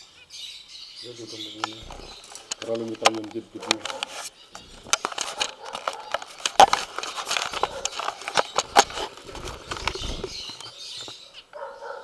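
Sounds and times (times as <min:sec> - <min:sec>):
clicks and knocks on wire cage: 0:01.6 - 0:10.7.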